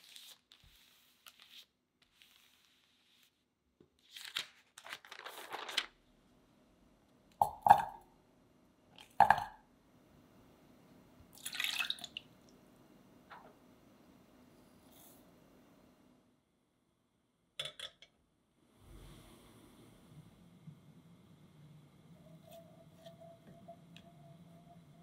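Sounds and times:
parchment paper rustling: 0.0 - 6.0.

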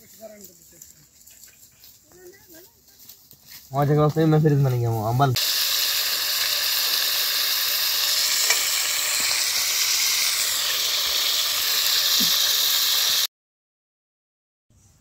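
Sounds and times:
food sizzling in a pan: 5.4 - 13.3.

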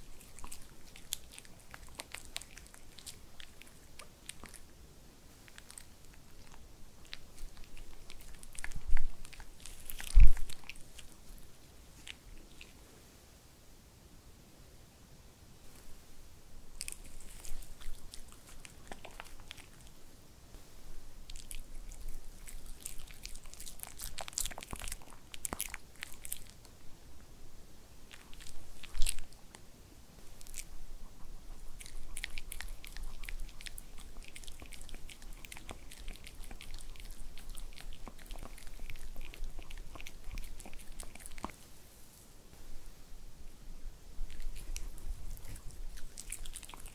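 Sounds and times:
dog chewing treat: 0.0 - 4.7, 5.5 - 12.8, 16.8 - 20.0, 21.3 - 26.7, 28.1 - 29.4, 30.4 - 41.6, 44.2 - 46.9.

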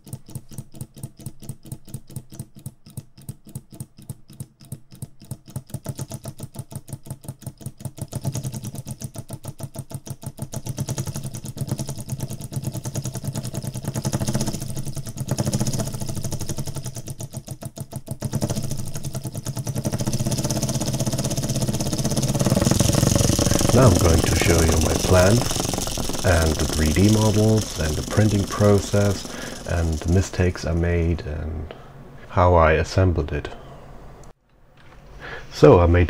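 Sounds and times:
solenoid engine plunger clacking: 0.0 - 31.4.

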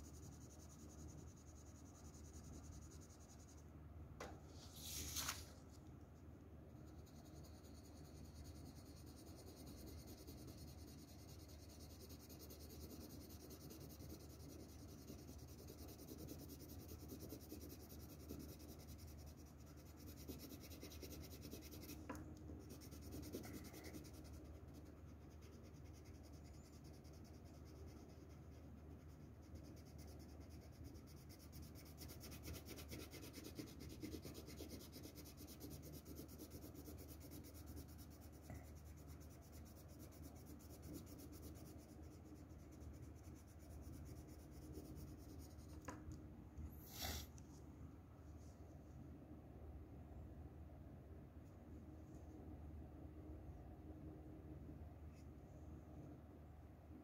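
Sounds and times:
pencil scratching on paper: 0.0 - 3.6, 6.8 - 46.0
pencil scrape: 46.8 - 47.4.

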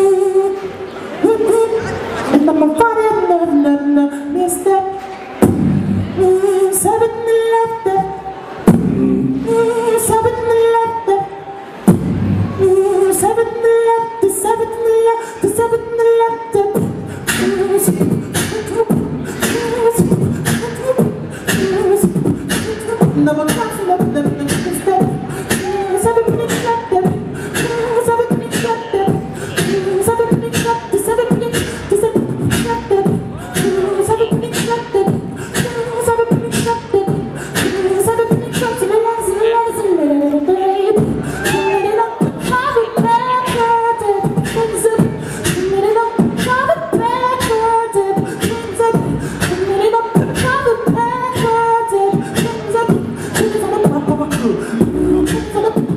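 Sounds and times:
beatboxing through microphone: 0.0 - 55.9.

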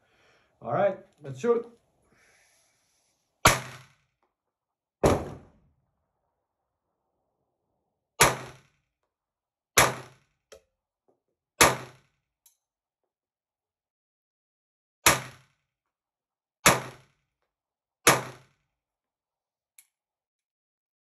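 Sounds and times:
pistol shots: 3.4 - 4.0, 8.2 - 8.7, 9.8 - 10.2, 11.6 - 12.0, 15.0 - 15.5, 16.6 - 17.1, 18.0 - 18.5.

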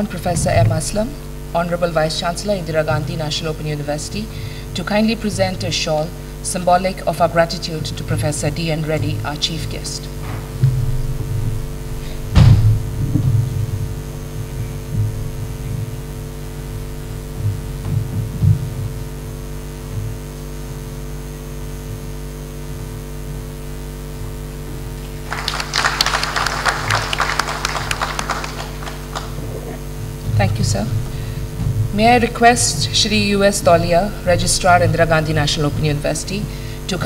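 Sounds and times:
electrical hum: 0.0 - 37.0
loud thump: 10.2 - 16.0
audience applause: 25.0 - 29.8.

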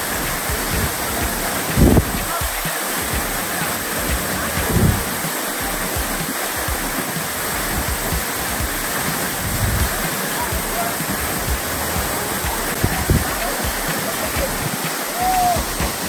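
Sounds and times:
waterfall rushing: 0.0 - 16.0.

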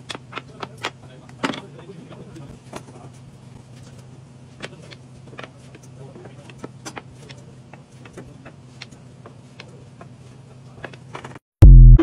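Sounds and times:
steady low hum: 11.6 - 12.0.

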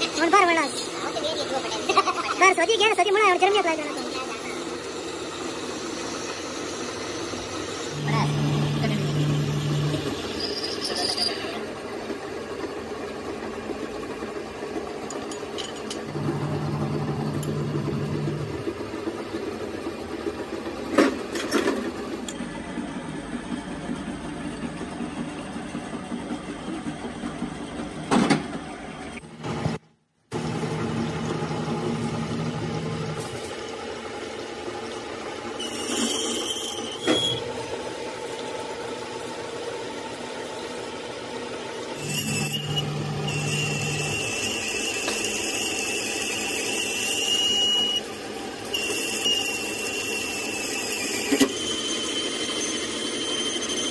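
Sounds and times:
metal lathe running: 3.4 - 20.7, 35.6 - 37.8, 41.7 - 53.9
high-pitched cutting squeal: 6.8 - 11.7, 35.6 - 37.5, 42.0 - 53.9.

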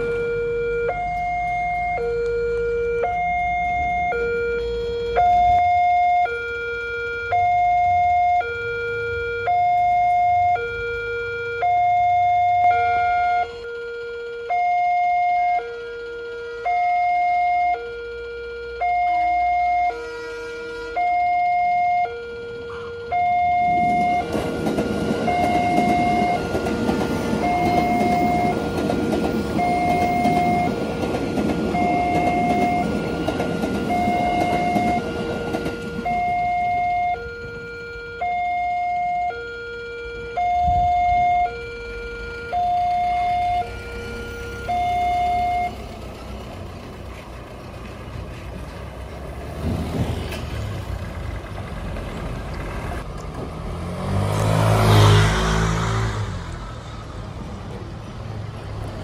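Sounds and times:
two-tone level crossing alarm: 0.0 - 46.0
road traffic engines: 0.0 - 59.0
train rumbling over crossing: 19.2 - 39.2, 40.2 - 59.0.

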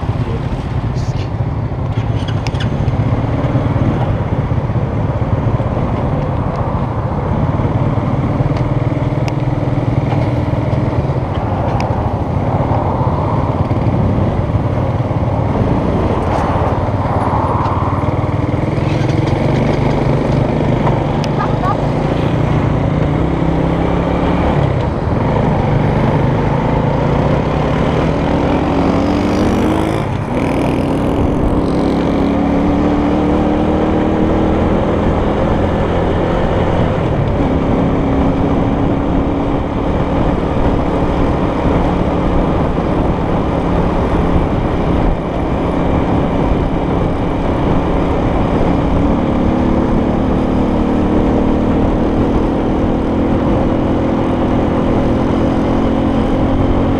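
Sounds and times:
wind and road noise: 0.0 - 56.9
motor scooter engine running: 18.8 - 23.2.

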